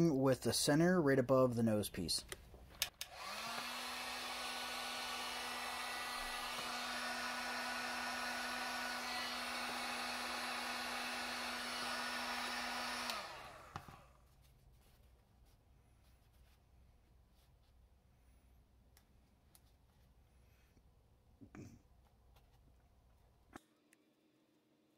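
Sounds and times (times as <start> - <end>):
heat gun blowing air: 2.9 - 14.2.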